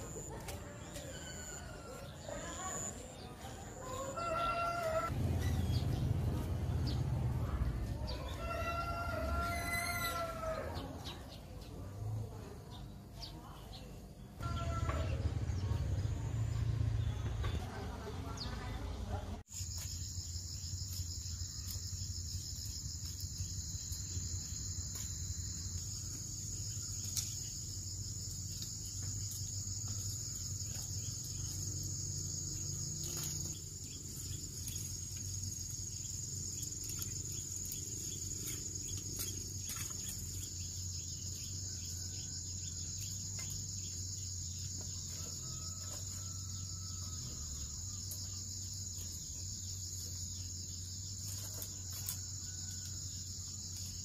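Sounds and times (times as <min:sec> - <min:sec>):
insects chirring: 0:19.5 - 0:54.0.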